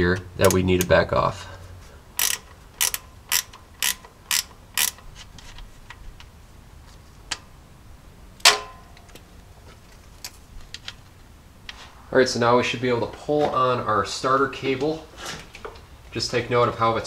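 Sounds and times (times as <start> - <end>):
ratcheting wrench clicking: 2.2 - 5.2
sharp metallic clink: 8.4 - 9.1.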